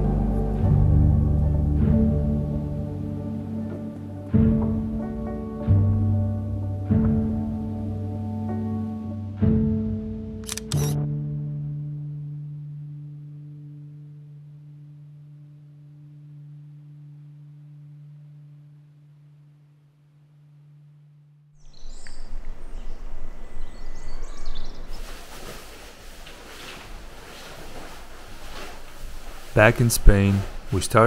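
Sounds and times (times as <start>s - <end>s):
held music chord: 0.0s - 10.2s.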